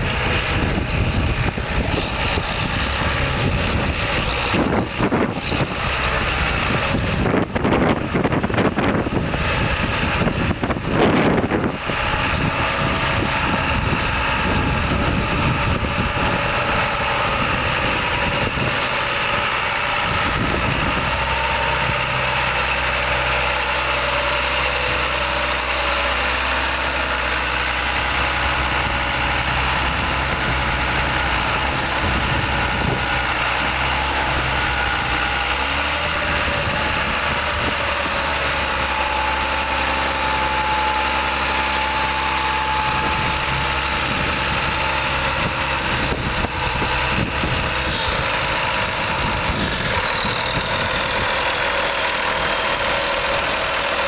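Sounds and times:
tractor diesel engine idling: 0:00.0 - 0:54.0.

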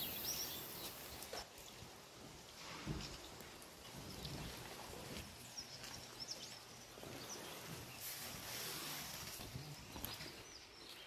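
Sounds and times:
high bird chirps: 0:00.0 - 0:01.2.

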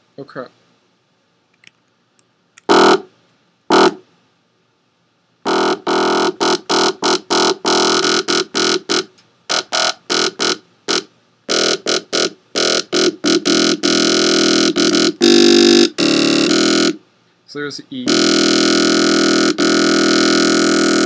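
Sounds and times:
synthesized bass notes: 0:11.5 - 0:17.0, 0:18.1 - 0:21.0.

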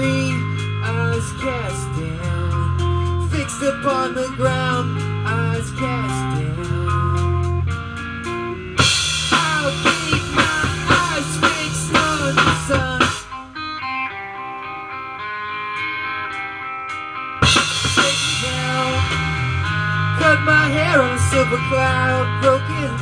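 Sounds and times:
electric guitars bending notes: 0:00.0 - 0:23.0
rock band playing: 0:00.0 - 0:23.0
drum hits: 0:08.8 - 0:13.3, 0:17.4 - 0:20.5.

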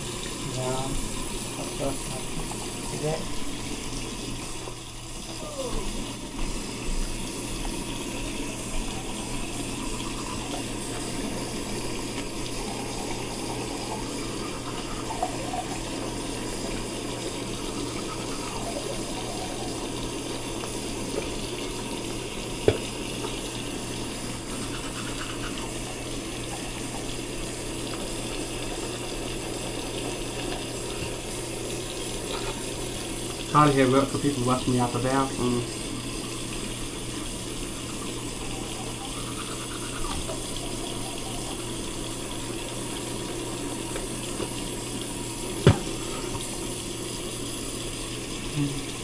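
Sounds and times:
water running: 0:00.0 - 0:49.0.

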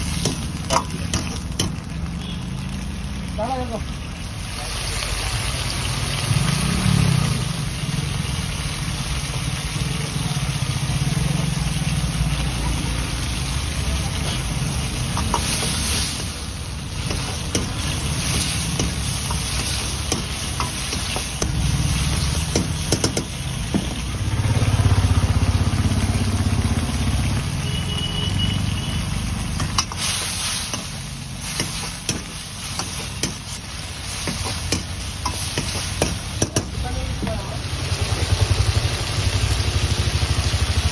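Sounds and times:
sauce bubbling and sizzling: 0:00.0 - 0:40.9
metal ladle scraping a wok: 0:14.1 - 0:23.4, 0:29.5 - 0:36.4.

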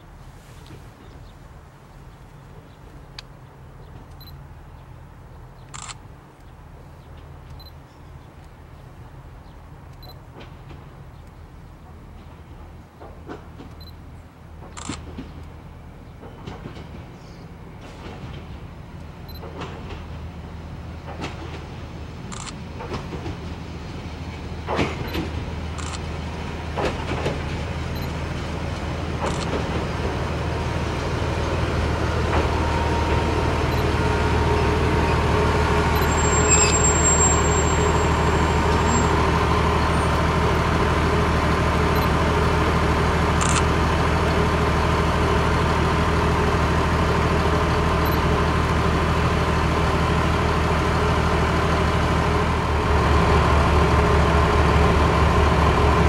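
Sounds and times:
diesel railcar engine: 0:00.0 - 0:56.0
high brake squeal: 0:35.9 - 0:40.2.

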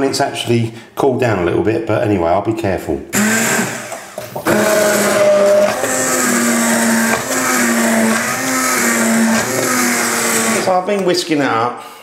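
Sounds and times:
stick blender whirring in soup: 0:03.2 - 0:11.1.

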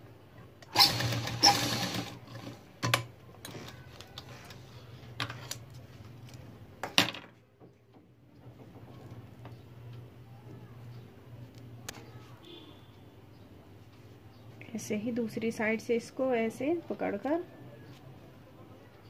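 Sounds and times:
sewing machine stitching: 0:00.6 - 0:02.6.

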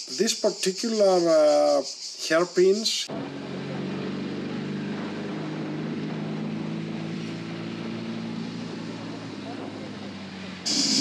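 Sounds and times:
motorcycle engine running: 0:03.1 - 0:11.0
wind and road noise: 0:03.1 - 0:11.0.

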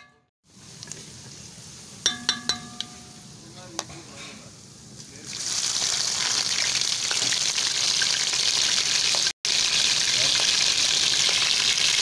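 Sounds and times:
spatula knocking metal pot: 0:00.0 - 0:00.3, 0:02.0 - 0:04.0
oil sizzling in a pot: 0:04.4 - 0:12.0.

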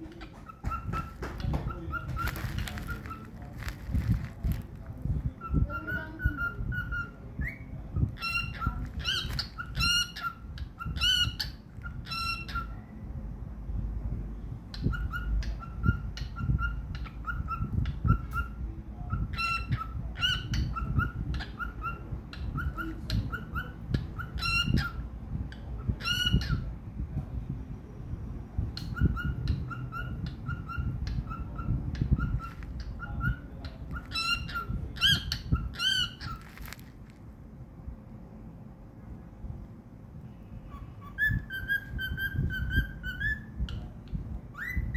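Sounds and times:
cockatiel chirping whistles: 0:28.8 - 0:36.4, 0:40.7 - 0:43.5, 0:44.5 - 0:44.9
cockatiel squawks: 0:28.9 - 0:36.4.

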